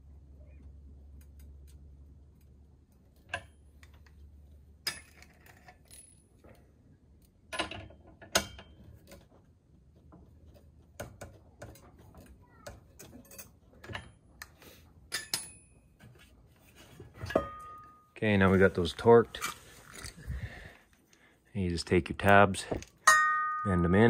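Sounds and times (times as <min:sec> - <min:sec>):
sharp metal knocks: 0:23.0 - 0:24.0.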